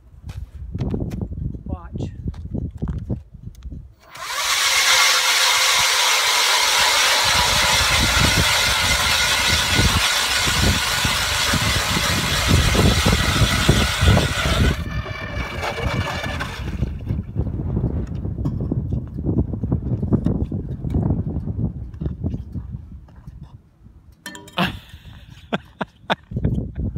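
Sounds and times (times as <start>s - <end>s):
electric ice auger drilling: 4.0s - 17.2s.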